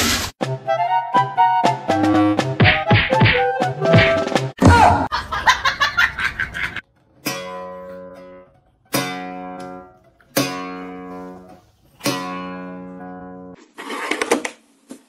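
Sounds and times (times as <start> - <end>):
acoustic guitar chords ringing: 7.2 - 11.4.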